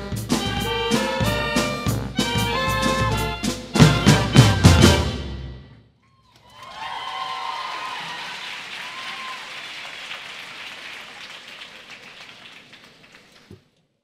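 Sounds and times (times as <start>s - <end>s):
faint cheers: 6.1s - 10.0s
audience applauding: 6.3s - 13.7s.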